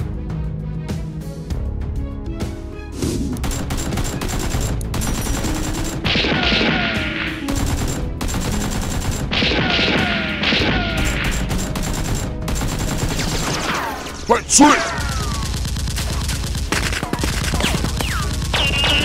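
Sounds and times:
automatic gunfire bursts: 3.4 - 13.8, 14.7 - 19.0.

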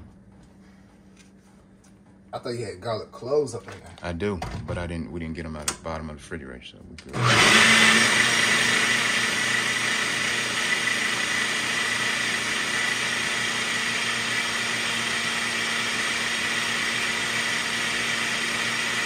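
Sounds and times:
blender motor whining: 7.1 - 19.0.

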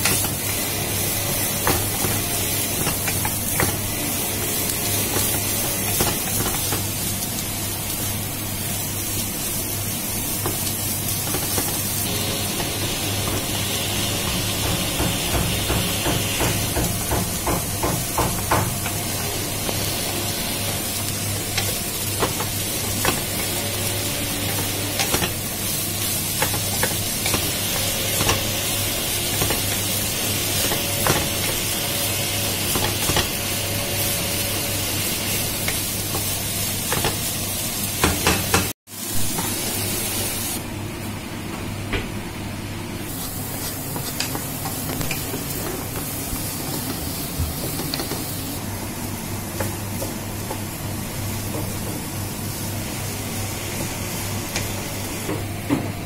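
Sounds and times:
vegetables sizzling in a frying pan: 0.0 - 40.8, 42.9 - 55.6
wooden spatula stirring and scraping: 43.1 - 48.3.

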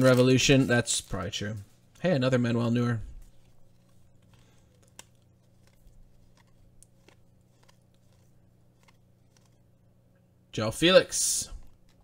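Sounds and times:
low steady hum: 0.0 - 12.0
trading cards flipped by hand: 3.2 - 9.8.

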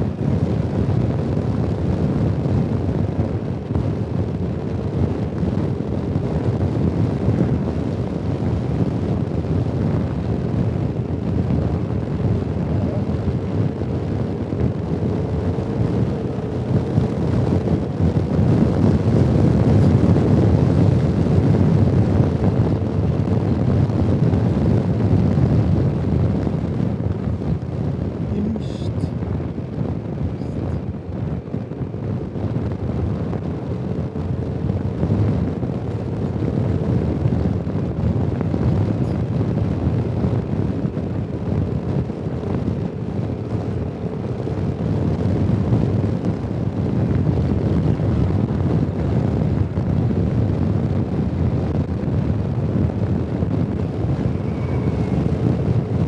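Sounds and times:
wind on microphone: 0.0 - 56.0
scooter engine and tyres: 9.2 - 24.8, 30.4 - 47.8, 51.2 - 56.0.

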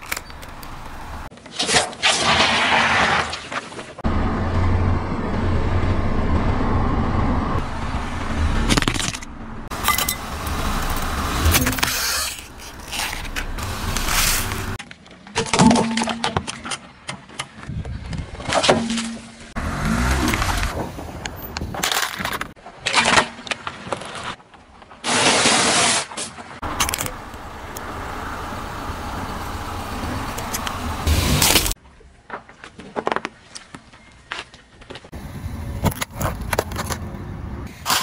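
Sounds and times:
car tyres rumbling on asphalt: 0.0 - 1.3, 4.0 - 14.8, 19.3 - 22.6, 26.5 - 31.8
objects crunching under tyre: 0.0 - 4.0, 8.6 - 27.8, 30.4 - 38.0.

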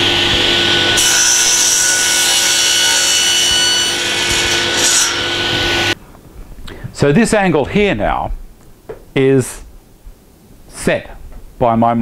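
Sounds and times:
saw blade cutting wood: 0.0 - 6.0
table saw running: 0.0 - 6.0.

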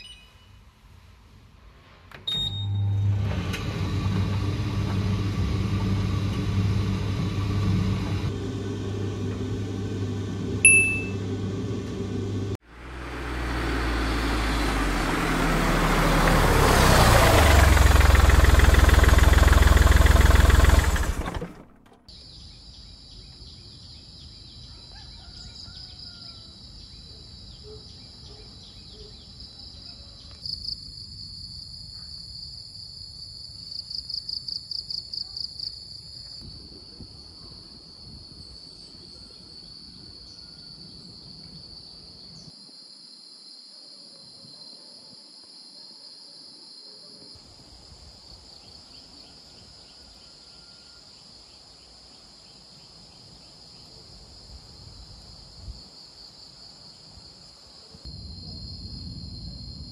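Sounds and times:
insects droning: 12.7 - 59.9.

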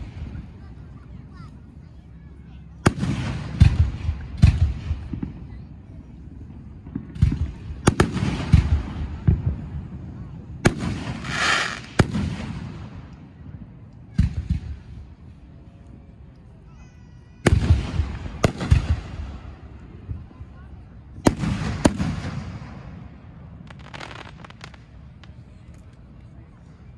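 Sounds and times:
fireworks bangs with echoing rumbles: 2.8 - 5.7, 6.4 - 15.2, 17.4 - 25.4
fireworks hissing burst: 10.9 - 12.6.

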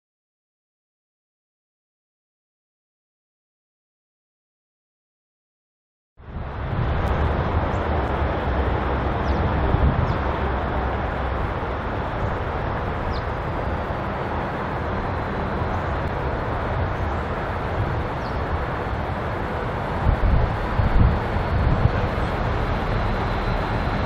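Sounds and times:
locomotive engine rumble: 6.2 - 24.0.

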